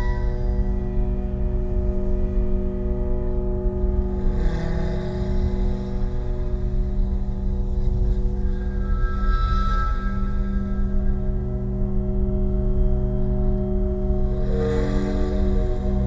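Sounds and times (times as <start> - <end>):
ambient drone music: 0.0 - 16.0.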